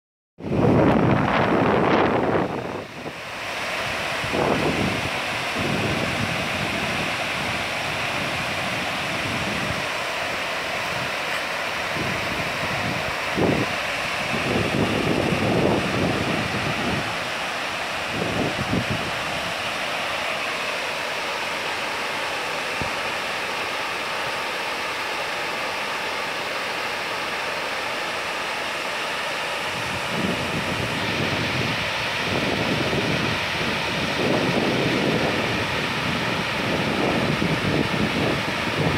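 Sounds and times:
wind buffeting microphone: 0.4 - 10.1, 10.7 - 19.8, 29.7 - 38.9
waterfall rushing: 0.4 - 38.9.

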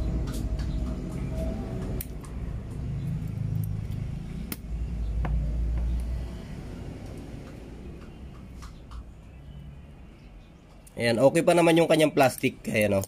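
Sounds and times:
scissors snipping cable: 3.2 - 4.7.

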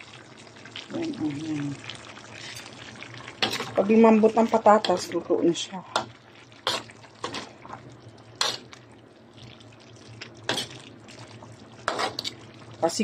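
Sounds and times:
sauce bubbling: 0.0 - 13.0
metal spatula scraping wok: 6.6 - 7.5, 8.4 - 8.7, 10.5 - 10.7, 11.8 - 12.4.

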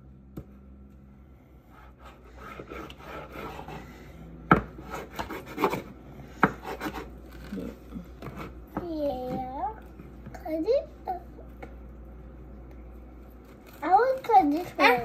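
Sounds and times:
plastic knives sawing strawberries: 1.8 - 3.9, 4.7 - 8.6, 13.5 - 15.0
knives scraping on wooden board: 4.6 - 8.6.

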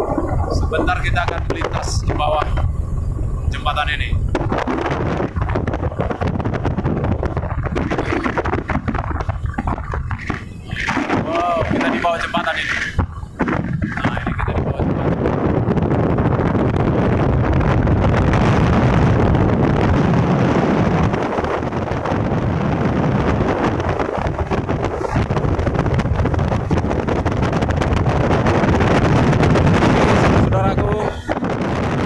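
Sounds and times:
rushing water: 0.0 - 2.8, 7.2 - 15.0
outboard engine: 0.0 - 32.0
wind buffeting microphone: 0.0 - 32.0.

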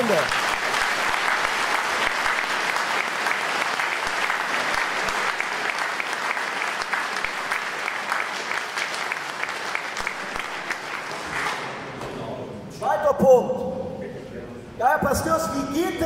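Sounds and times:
audience applause: 0.0 - 11.9.

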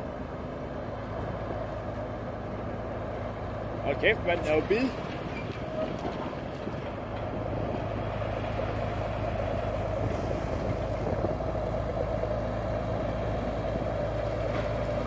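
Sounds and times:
dragline engine running under load: 0.0 - 15.0.

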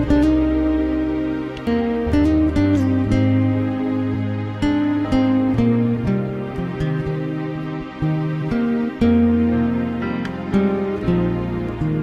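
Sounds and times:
soft guitar background music: 0.0 - 12.0.

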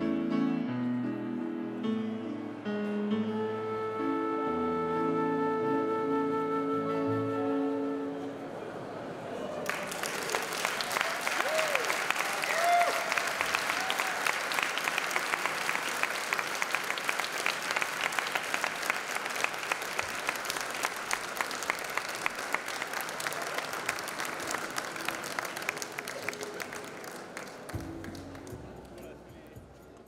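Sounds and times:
audience applauding: 9.6 - 29.5.

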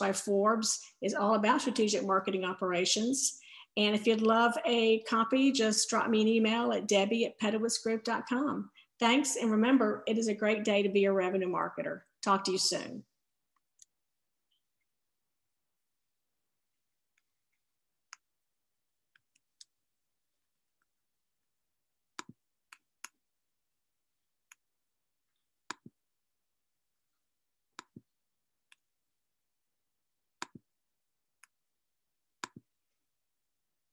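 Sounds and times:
computer mouse clicking: 18.0 - 18.3, 19.1 - 19.8, 22.1 - 23.2, 25.6 - 26.0, 27.7 - 28.9, 30.4 - 30.7, 32.4 - 32.7.

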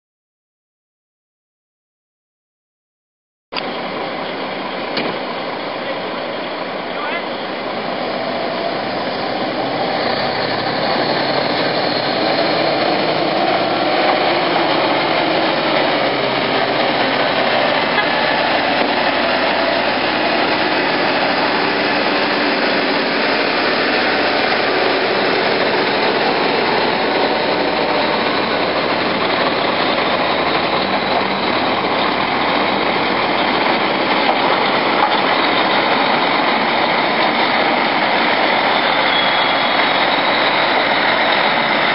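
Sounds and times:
heavy diesel engines passing: 3.6 - 41.9.

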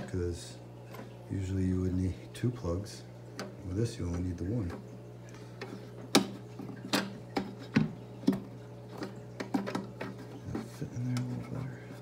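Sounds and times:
steady low hum: 0.0 - 12.0
clicks and knocks on glass aquarium: 3.3 - 4.9, 5.6 - 11.3.

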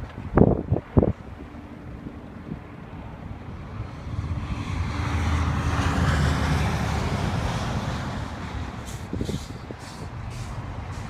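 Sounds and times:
wind noise on microphone: 0.0 - 11.0
vehicle driving past: 3.4 - 11.0.

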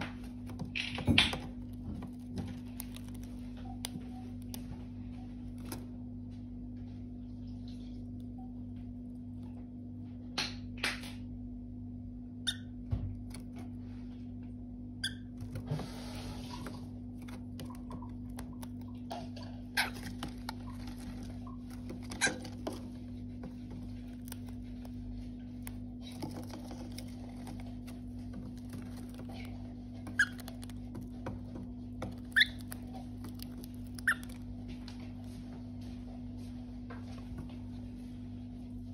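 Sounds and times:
bird pecking at paper carton: 0.0 - 5.9, 15.4 - 35.3
steady low hum: 0.0 - 38.9
paper rustling: 15.6 - 35.3.

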